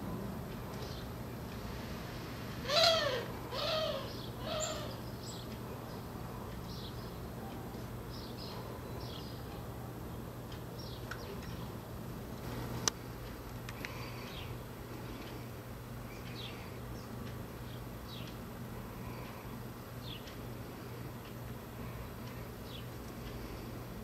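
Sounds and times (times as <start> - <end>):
animal hooting calls: 2.6 - 5.0.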